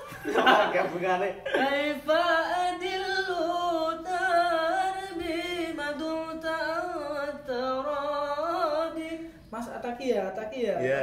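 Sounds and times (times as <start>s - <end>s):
man singing unaccompanied: 1.5s - 9.4s.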